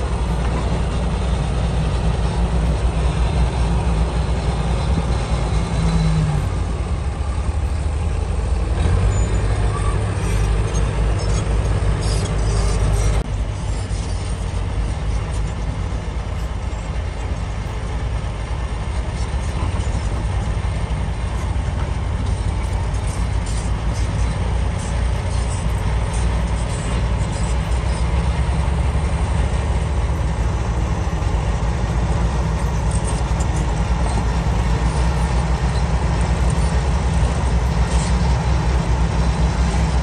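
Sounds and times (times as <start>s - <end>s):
bulldozer working: 0.0s - 40.0s
excavator loading dump truck: 0.0s - 40.0s.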